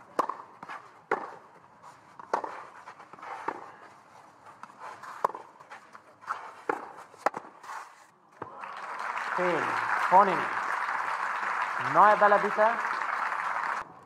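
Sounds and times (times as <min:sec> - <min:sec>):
tennis ball bouncing: 0:00.0 - 0:03.7, 0:04.6 - 0:07.6
racket hitting tennis ball: 0:00.0 - 0:03.8, 0:04.6 - 0:07.8.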